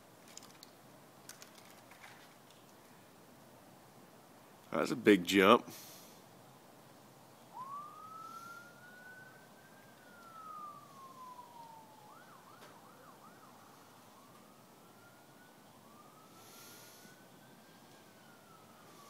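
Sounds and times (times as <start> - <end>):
faint siren wailing: 7.4 - 19.0
siren yelp: 7.5 - 19.0.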